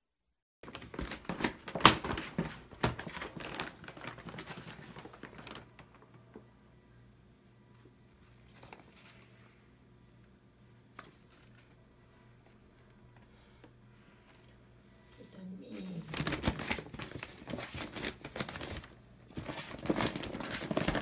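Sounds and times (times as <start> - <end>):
paper bag rustling and crinkling: 0.6 - 6.3, 8.4 - 9.4, 15.7 - 21.0.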